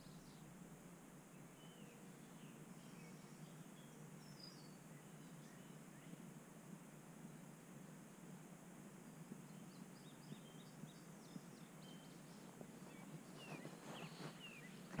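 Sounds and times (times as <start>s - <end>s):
small birds chirping: 0.0s - 0.5s, 1.3s - 6.4s, 9.0s - 15.0s.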